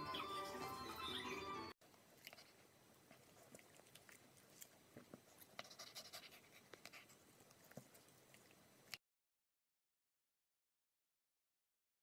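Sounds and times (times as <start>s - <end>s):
dog panting: 5.2s - 8.6s.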